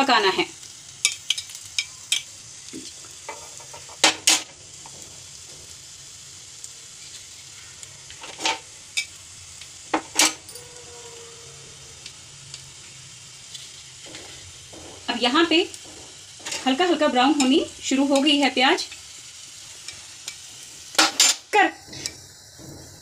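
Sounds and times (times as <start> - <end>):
onion sizzling in hot fat: 0.0 - 23.0
metal spoon knocking pan: 14.0 - 18.9.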